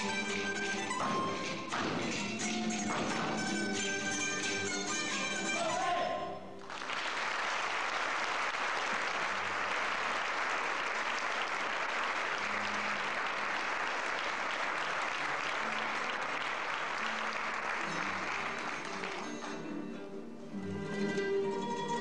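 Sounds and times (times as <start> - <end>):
string band music: 0.0 - 6.6, 15.7 - 22.0
audience applauding: 6.6 - 20.0.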